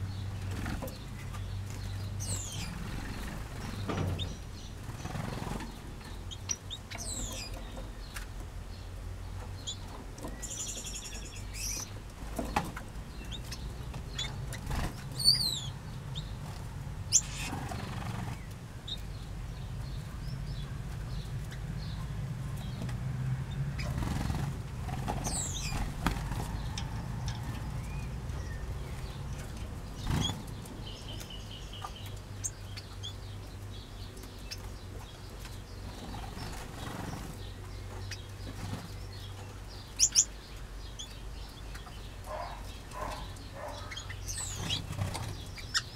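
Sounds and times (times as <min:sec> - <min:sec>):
small birds chirping: 0:00.0 - 0:45.9
wings fluttering: 0:23.8 - 0:27.9, 0:29.4 - 0:30.8.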